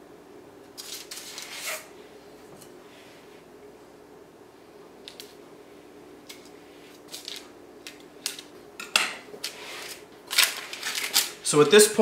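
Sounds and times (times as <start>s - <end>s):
spatula scraping frosting: 0.8s - 1.9s.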